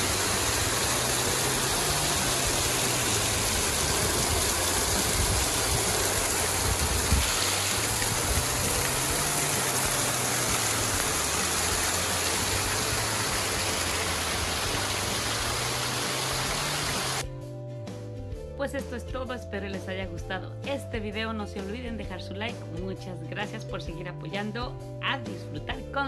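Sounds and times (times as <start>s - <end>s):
waterfall splashing into a pool: 0.0s - 17.2s.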